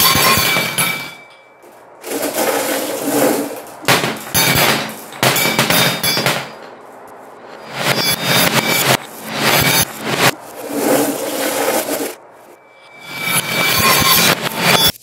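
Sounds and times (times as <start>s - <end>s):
ringing ding: 0.0s - 1.6s, 5.2s - 6.6s
marbles rolling: 2.0s - 6.3s.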